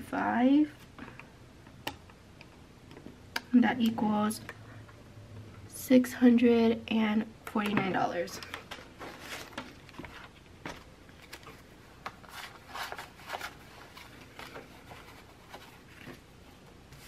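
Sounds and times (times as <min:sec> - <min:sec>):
banknotes rustling: 0:08.4 - 0:17.0.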